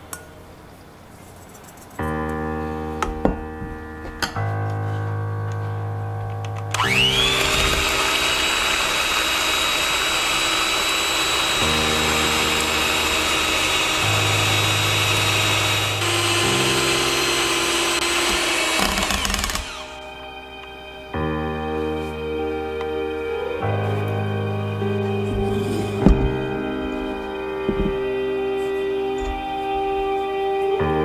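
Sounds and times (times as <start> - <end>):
background music: 0.0 - 31.0
electric hand mixer whirring: 6.7 - 20.2.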